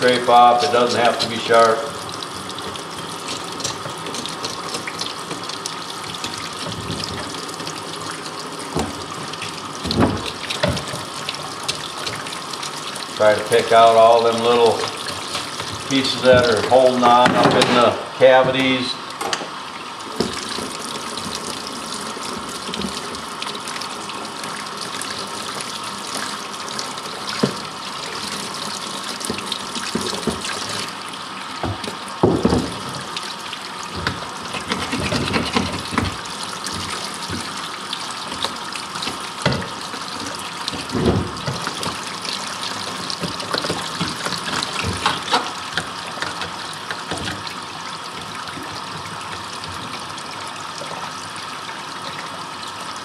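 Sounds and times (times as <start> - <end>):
tap water running: 0.0 - 53.0.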